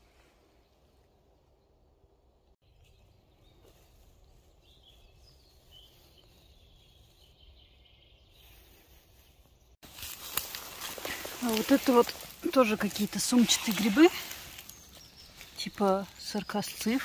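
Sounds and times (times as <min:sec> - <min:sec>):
distant bird calls: 0:10.0 - 0:17.0.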